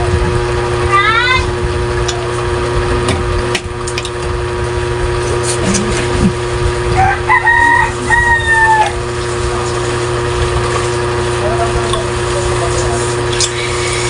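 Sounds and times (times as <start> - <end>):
steady low hum: 0.0 - 14.0
rooster crowing: 6.9 - 9.1.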